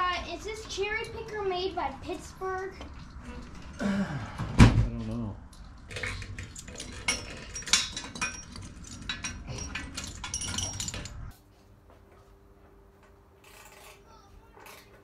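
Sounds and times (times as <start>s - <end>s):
metal tools clinking: 5.6s - 11.4s.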